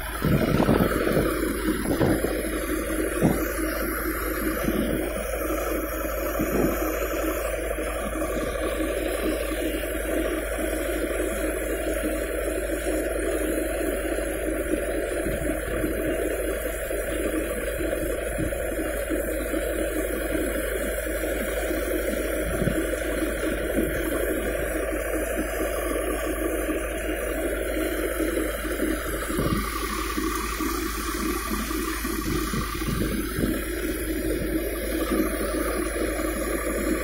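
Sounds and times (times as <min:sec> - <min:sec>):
thresher machine drone: 0:00.0 - 0:37.0.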